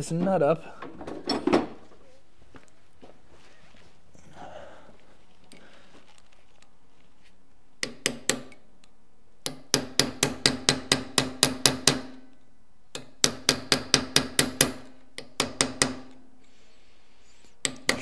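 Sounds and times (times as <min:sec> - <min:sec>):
hammer tapping steel punch: 0:07.8 - 0:08.6, 0:09.4 - 0:12.2, 0:12.9 - 0:16.2, 0:17.6 - 0:18.0.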